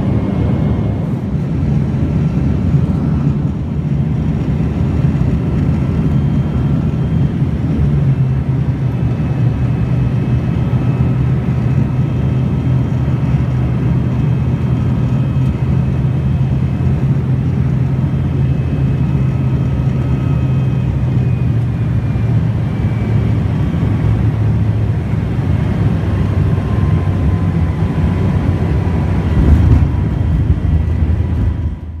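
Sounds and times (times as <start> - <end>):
airliner cabin drone: 0.0 - 32.0
engine whines: 0.0 - 32.0.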